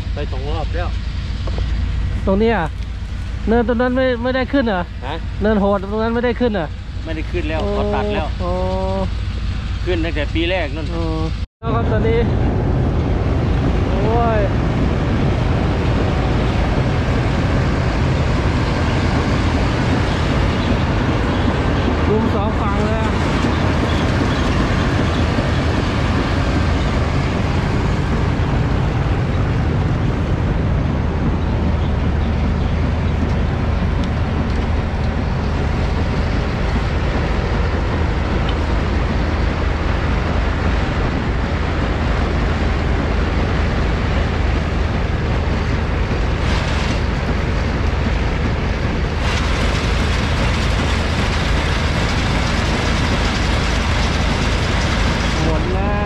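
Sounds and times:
diesel engine low hum: 0.0 - 56.0
elevator rattling: 44.7 - 55.9.

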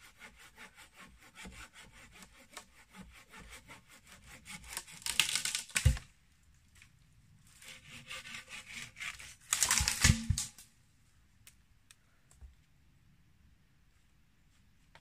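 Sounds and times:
wooden pole scraping twigs: 6.8 - 10.6.

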